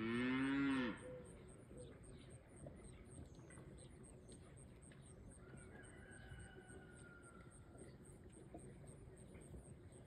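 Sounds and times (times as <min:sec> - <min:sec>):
cow mooing: 0:00.0 - 0:01.1.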